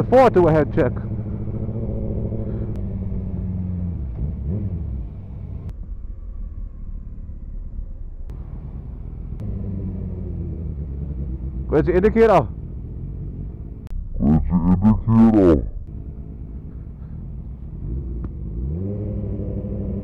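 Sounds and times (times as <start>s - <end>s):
motorcycle engine running: 0.0s - 5.7s, 8.3s - 13.9s, 15.8s - 20.0s.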